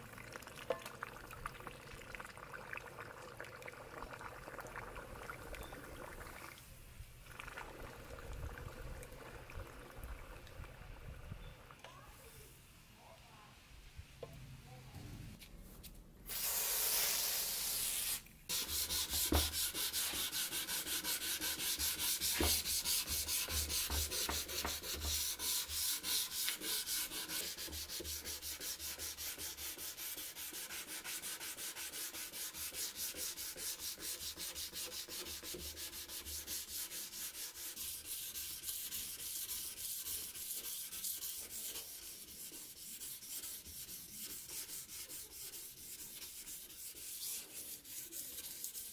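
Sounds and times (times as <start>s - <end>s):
hand-sanding knife blade: 16.9s - 48.9s.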